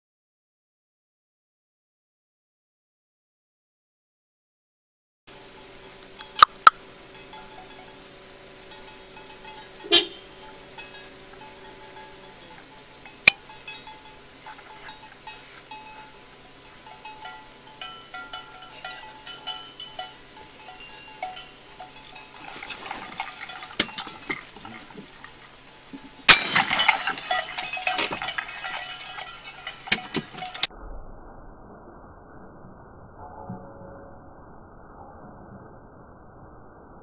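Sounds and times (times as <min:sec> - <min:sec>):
cattle bells clinking: 0:05.3 - 0:30.7.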